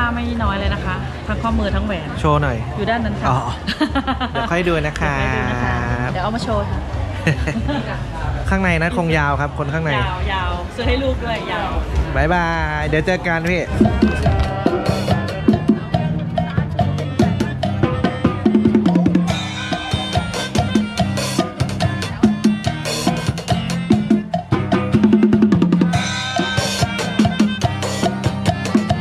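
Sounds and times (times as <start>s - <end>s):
drum hits: 12.8s - 29.0s
acoustic guitars strumming: 13.4s - 29.0s.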